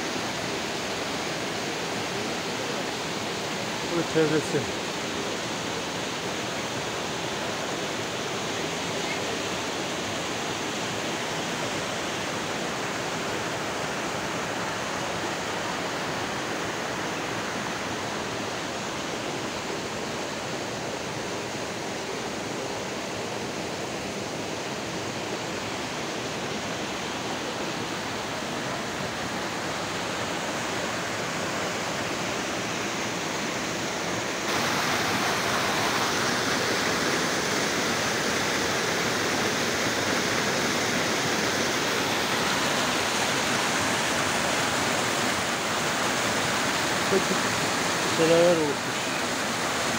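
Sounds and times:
stream rushing over rocks: 0.0s - 49.9s
cascade pouring into pool: 34.5s - 49.9s.

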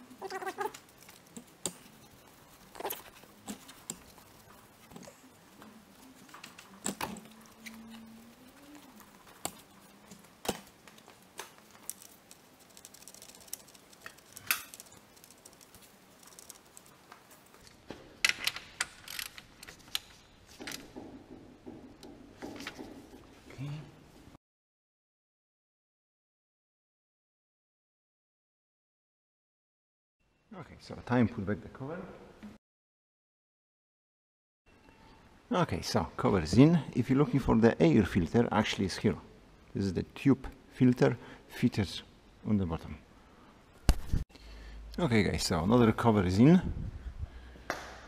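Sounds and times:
hand tools clicking and knocking: 18.2s - 23.3s.

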